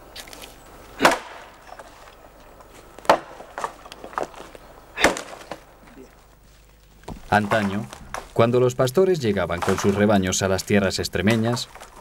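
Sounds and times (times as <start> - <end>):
axe chopping wood: 1.0 - 1.6, 3.0 - 4.3, 5.0 - 5.7
wood knocking and cracking: 2.6 - 5.7, 7.0 - 8.5, 9.4 - 10.2.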